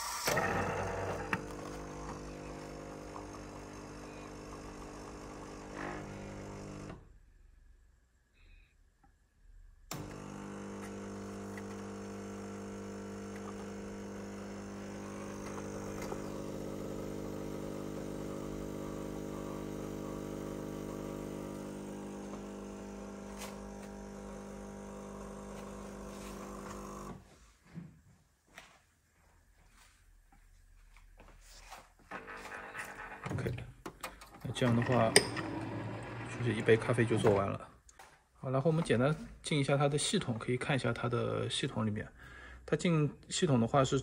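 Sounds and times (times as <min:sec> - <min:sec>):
espresso machine pump running: 0:00.2 - 0:07.0, 0:09.9 - 0:27.2, 0:34.5 - 0:37.4.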